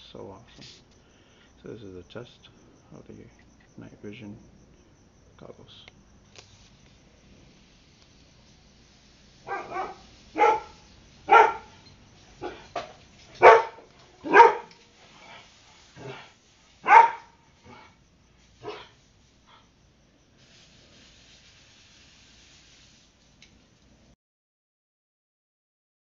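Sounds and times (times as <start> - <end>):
dog barking: 9.4 - 11.8, 12.4 - 12.7, 13.3 - 15.3, 16.0 - 18.0, 18.6 - 19.7.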